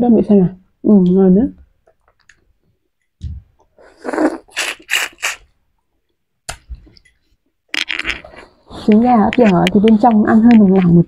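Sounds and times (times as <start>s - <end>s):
egg shell crackling: 7.7s - 11.0s.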